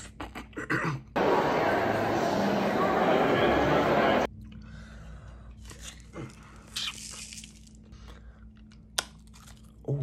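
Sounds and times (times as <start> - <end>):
teeth crunching hard candy: 5.6 - 10.0.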